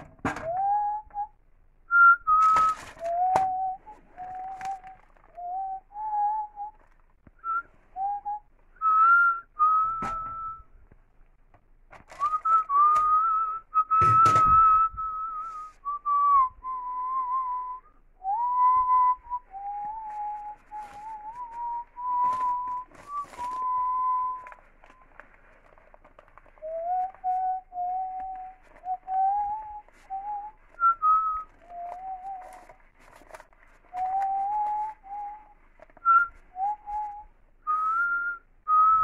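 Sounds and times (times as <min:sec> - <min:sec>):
person whistling a tune: 0:00.3 - 0:06.8, 0:07.4 - 0:10.7, 0:12.2 - 0:24.7, 0:26.6 - 0:32.8, 0:33.8 - 0:39.0.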